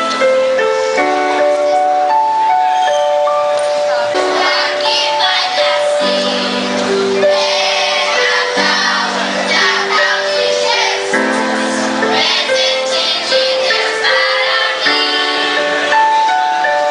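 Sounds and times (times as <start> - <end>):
electronic keyboard chords: 0.0 - 16.9
children's choir singing: 3.5 - 16.9.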